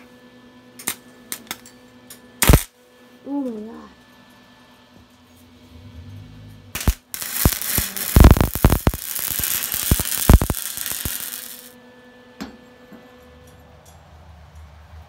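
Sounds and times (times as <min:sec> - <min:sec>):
welding arc crackling and popping: 0:02.4 - 0:02.7, 0:06.8 - 0:11.7.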